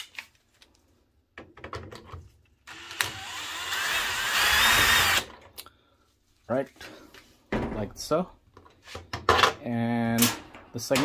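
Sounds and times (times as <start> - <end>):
cordless drill running: 2.7 - 5.3.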